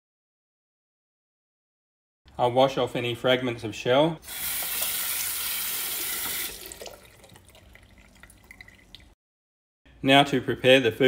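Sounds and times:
faint water drips: 6.2s - 9.2s.

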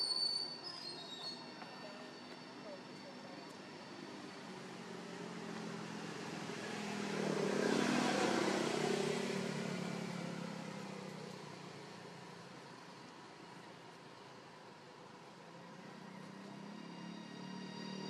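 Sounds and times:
vehicle driving past: 3.9s - 12.9s, 15.5s - 18.0s.

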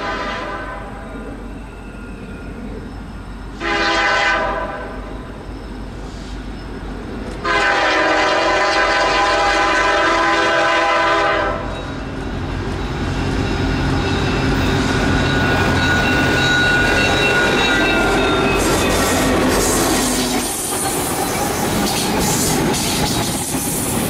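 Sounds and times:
locomotive air horn blast: 0.0s - 0.9s, 3.6s - 5.0s, 7.4s - 11.7s
train engines and wheels rumbling: 0.0s - 24.0s.

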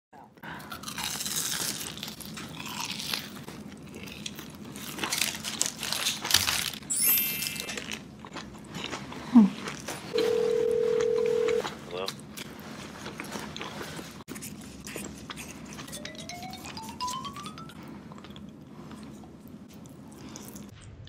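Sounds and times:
close-up chewing: 0.4s - 6.8s, 7.5s - 20.8s
crunching bites into fried food: 0.7s - 6.9s.

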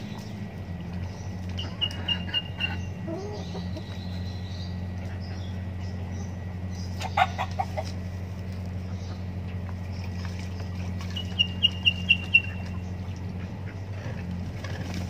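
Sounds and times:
chickens clucking: 0.0s - 15.0s
low hum: 0.0s - 15.0s
chicken high sharp calls: 1.6s - 4.2s, 6.9s - 8.0s.

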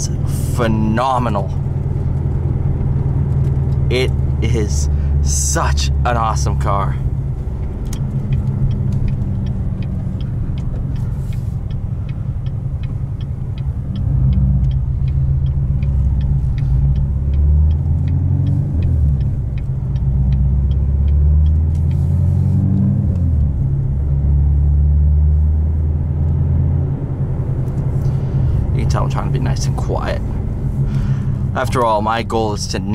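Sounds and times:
deep car exhaust drone: 0.0s - 32.9s
light fast ticking: 1.2s - 22.2s.

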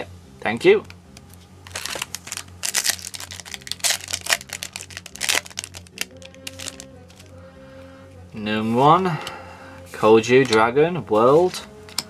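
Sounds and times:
foil wrapper tearing and crinkling: 1.7s - 7.3s.

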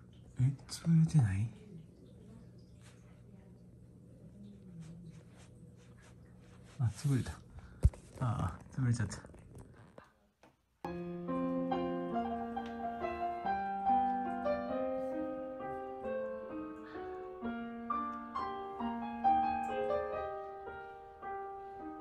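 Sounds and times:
piano music: 10.9s - 22.0s.

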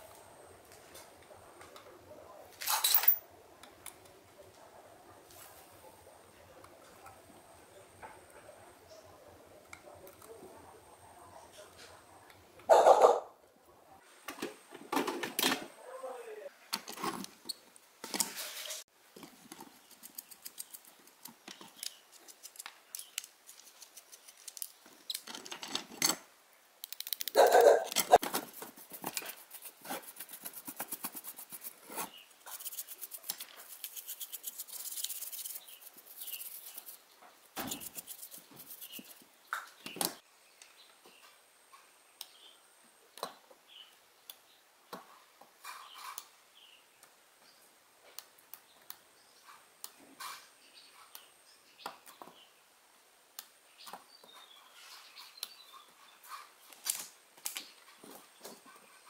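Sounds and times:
small parts clattering: 2.6s - 3.2s, 19.2s - 29.4s.

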